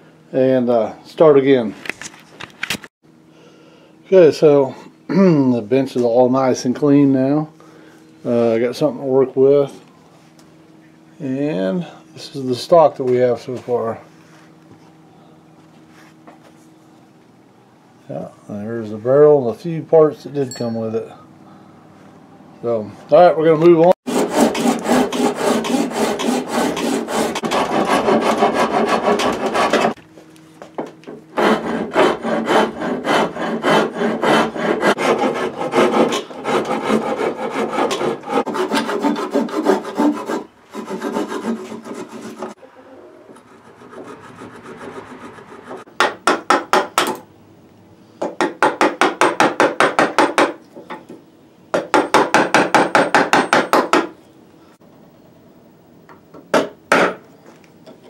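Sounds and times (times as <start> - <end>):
file rasping on wood: 24.1 - 30.0, 31.3 - 42.6, 43.4 - 46.8.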